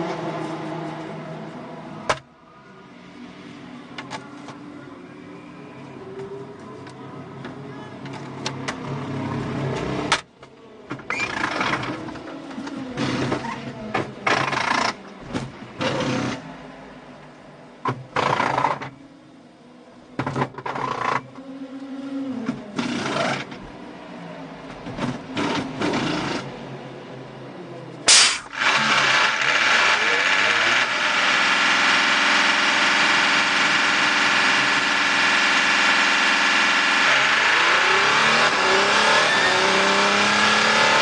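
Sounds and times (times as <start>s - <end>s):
rattling air tool bursts: 28.1s - 38.0s.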